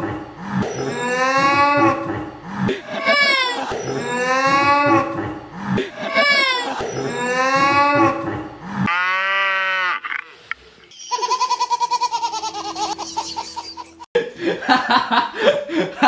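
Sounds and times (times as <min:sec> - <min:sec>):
person laughing: 0:02.7 - 0:03.8, 0:05.8 - 0:06.9, 0:11.1 - 0:16.0
baby giggling: 0:02.8 - 0:03.8, 0:05.8 - 0:06.9, 0:11.1 - 0:14.1.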